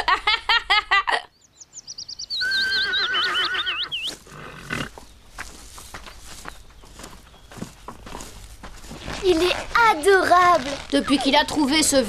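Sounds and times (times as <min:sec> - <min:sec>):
horse whinnying: 0:02.4 - 0:04.9.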